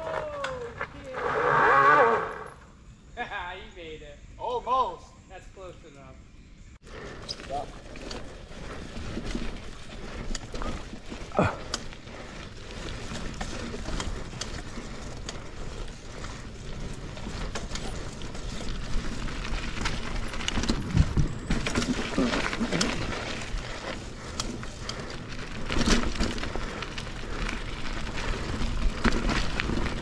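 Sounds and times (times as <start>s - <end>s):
bike tyres on dirt trail: 0.0s - 3.2s, 6.3s - 30.0s
bike clicks and rattles: 6.9s - 30.0s.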